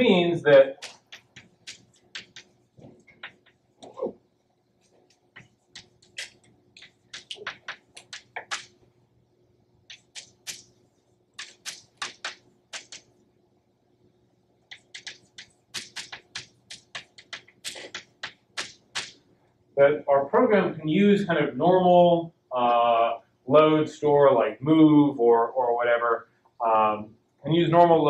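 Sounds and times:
chalk writing on chalkboard: 0.8s - 3.6s.

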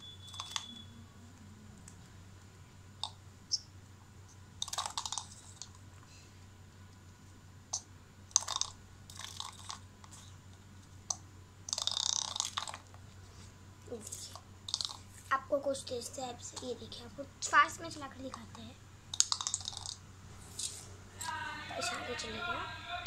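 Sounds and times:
spinning top rattling: 4.6s - 5.6s, 19.2s - 20.0s.

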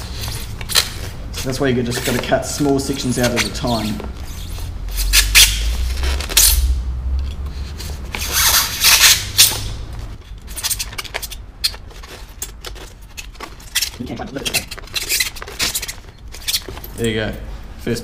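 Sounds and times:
knife cutting polystyrene foam: 8.1s - 9.6s.

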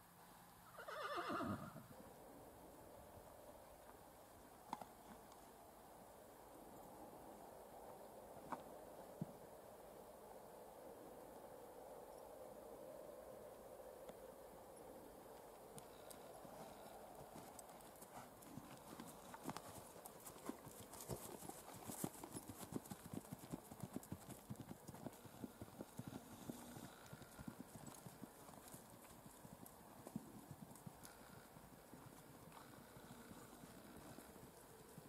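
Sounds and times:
hoofbeats on dirt: 15.8s - 34.3s.

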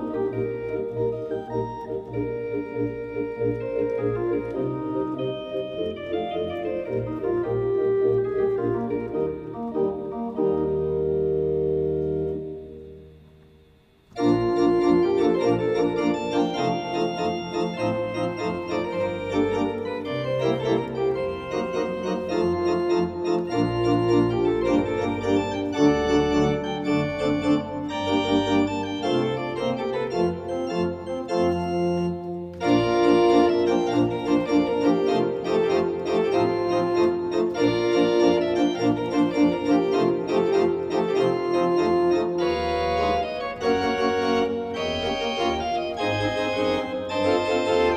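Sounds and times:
organ playing chords: 0.0s - 47.9s.

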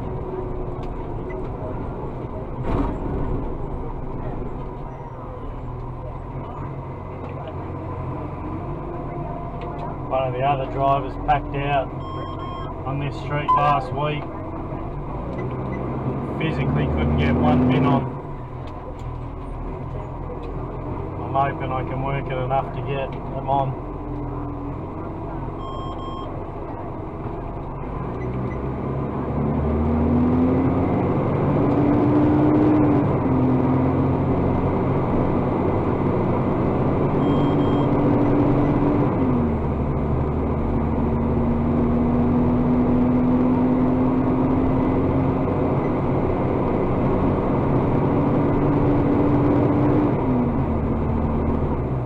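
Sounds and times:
diesel engine whining: 0.0s - 52.0s
short electronic beeps: 11.9s - 12.8s, 13.4s - 13.8s, 25.6s - 26.3s, 37.2s - 38.8s.

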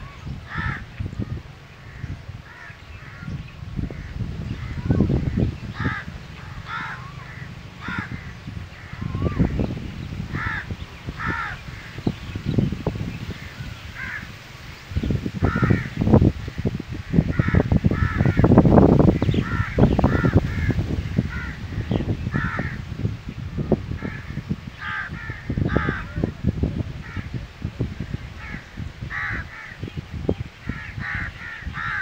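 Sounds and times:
wind buffeting microphone: 0.0s - 32.0s
crows cawing: 0.5s - 12.1s, 13.3s - 14.4s, 15.4s - 22.9s, 23.9s - 26.3s, 28.4s - 29.9s, 30.6s - 32.0s.

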